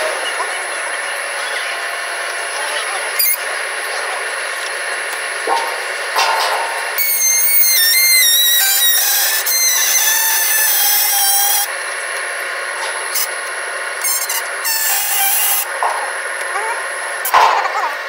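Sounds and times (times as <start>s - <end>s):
rolling machine running: 0.0s - 18.0s
high metallic squeal: 5.5s - 11.7s, 14.0s - 15.7s.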